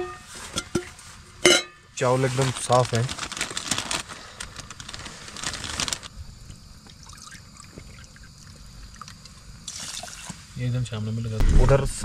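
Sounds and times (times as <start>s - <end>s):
water pouring into plastic cup: 6.9s - 9.1s, 9.7s - 10.4s.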